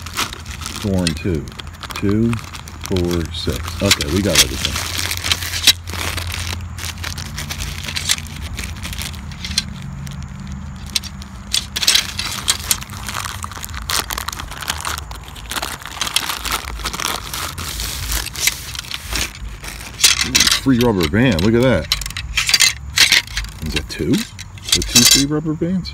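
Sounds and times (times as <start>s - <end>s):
metal tubes clinking: 0.0s - 14.9s, 17.6s - 25.4s
plastic bags crinkling: 0.0s - 25.4s.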